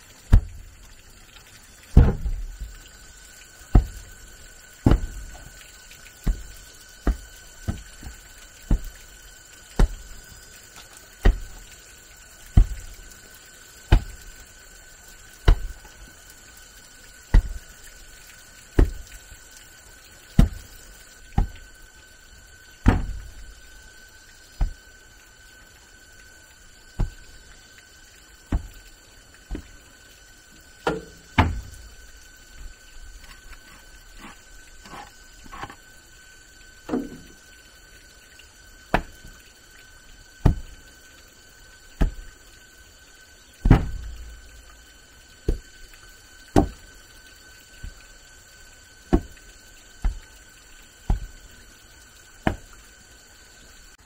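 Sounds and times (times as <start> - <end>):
heavy thuds: 2.0 - 2.6, 4.8 - 5.4, 22.8 - 23.4, 43.6 - 44.1.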